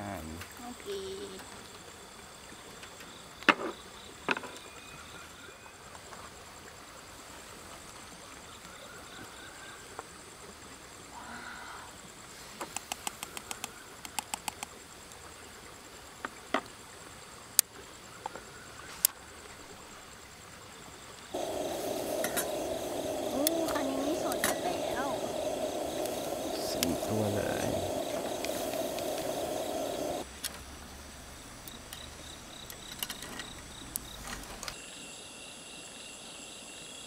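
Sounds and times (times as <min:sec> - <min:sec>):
faint outdoor background: 0:00.0 - 0:37.0
thin high-pitched whine: 0:21.4 - 0:30.2.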